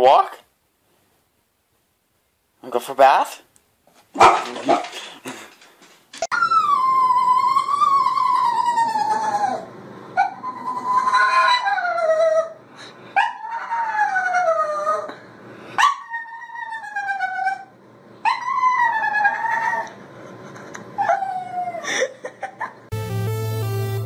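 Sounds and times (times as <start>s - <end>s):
small dog howling: 6.3s - 12.6s, 13.2s - 15.1s, 15.8s - 20.0s, 21.0s - 21.9s
electronic music: 22.9s - 24.0s.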